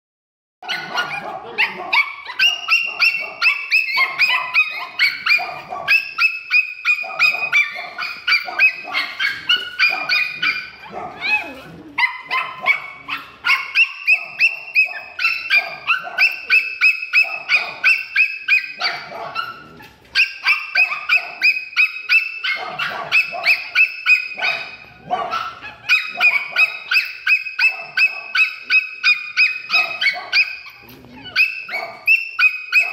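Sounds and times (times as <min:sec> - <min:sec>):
dog yapping: 0:00.6 - 0:32.9.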